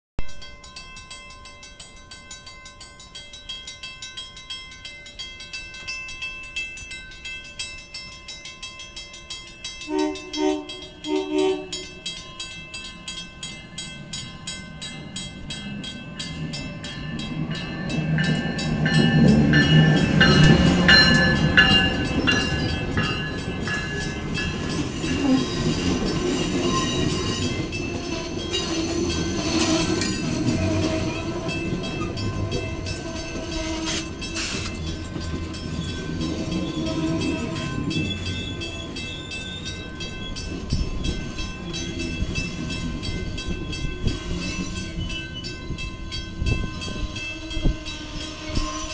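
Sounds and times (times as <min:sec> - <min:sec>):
train passing rumble: 0:02.8 - 0:48.9
train wheel clicks: 0:09.0 - 0:48.9
train horn blasts: 0:09.8 - 0:12.0, 0:25.1 - 0:25.8, 0:32.4 - 0:34.7, 0:36.4 - 0:38.0, 0:47.0 - 0:48.9.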